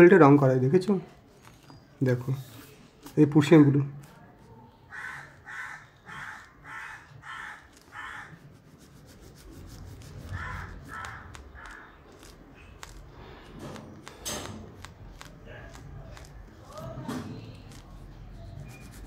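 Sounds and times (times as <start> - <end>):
crayon scratching on paper: 4.0 - 19.0
crow cawing: 4.9 - 8.4, 10.2 - 12.0.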